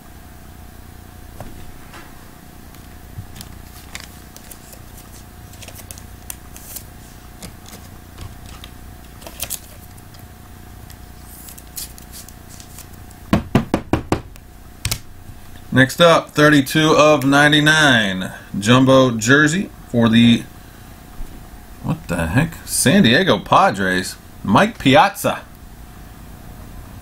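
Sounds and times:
cardboard box and cards rustling: 2.8 - 10.2, 10.9 - 13.1.

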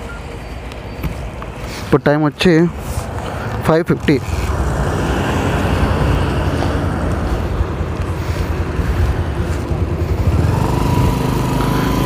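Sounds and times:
wind on microphone: 4.0 - 12.0
motorcycle engine idling: 7.2 - 12.0.

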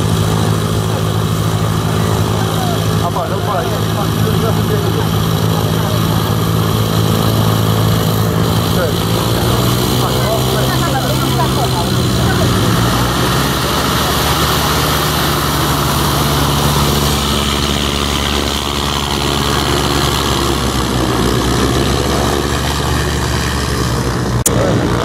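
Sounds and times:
propeller aircraft engine drone: 0.0 - 25.0.

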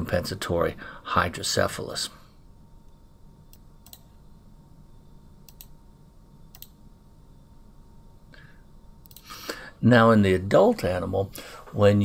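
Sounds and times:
low steady hum: 0.0 - 12.0
faint sharp clicks: 5.4 - 5.8, 9.0 - 9.6.

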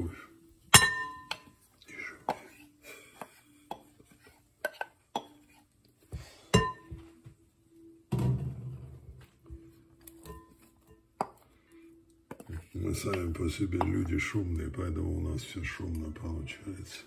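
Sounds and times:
wooden spoon knocking against bowls: 12.3 - 14.3.

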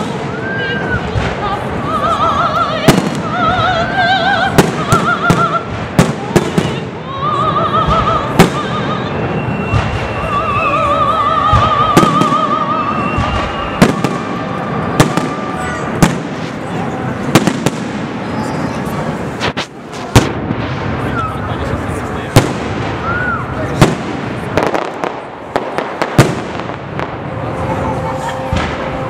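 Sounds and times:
fireworks bangs: 0.0 - 29.0
fireworks crackling: 0.0 - 29.0
woman singing opera-style: 0.2 - 13.6.

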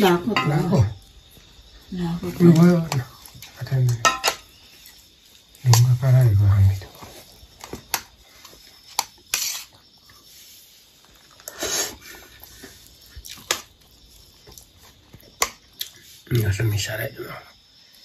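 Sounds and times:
spoon scraping metal plate: 9.3 - 9.8.

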